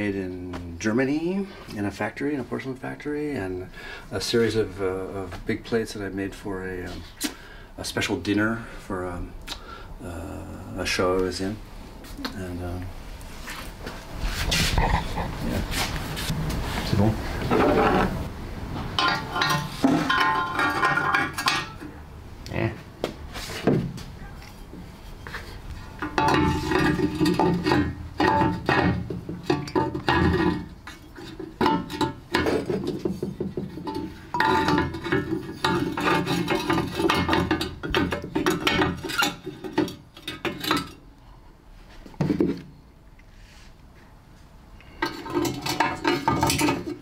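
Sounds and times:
ceramic pieces clinking: 19.0 - 21.9, 25.9 - 33.2, 33.8 - 41.0.

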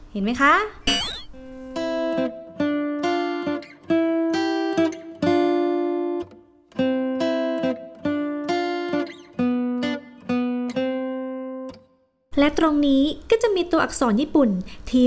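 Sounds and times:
plucked string music: 0.9 - 11.9.

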